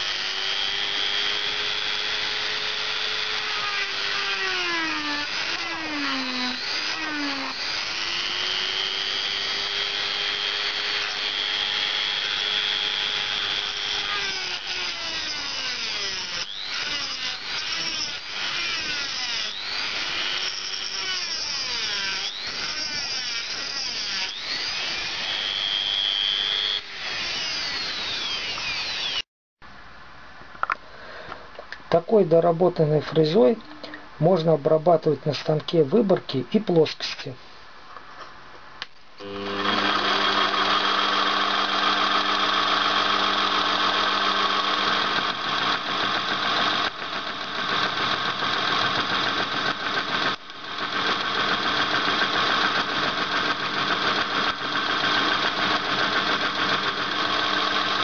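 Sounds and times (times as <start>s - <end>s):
rotary tool high whine: 0.0s - 29.3s, 39.2s - 58.0s
cutter scraping brass: 39.2s - 58.0s.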